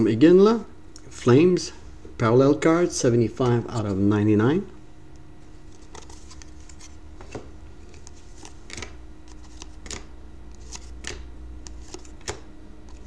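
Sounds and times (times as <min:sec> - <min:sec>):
steady low hum: 0:00.0 - 0:13.0
cards scraping: 0:05.5 - 0:13.0.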